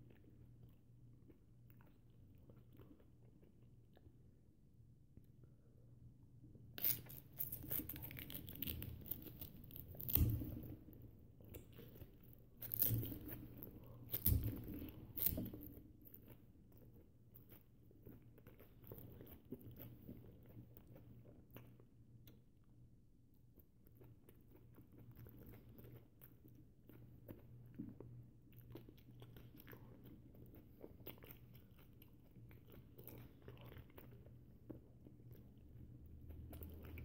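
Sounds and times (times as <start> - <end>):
person biting and chewing: 6.8 - 10.8, 11.5 - 16.9.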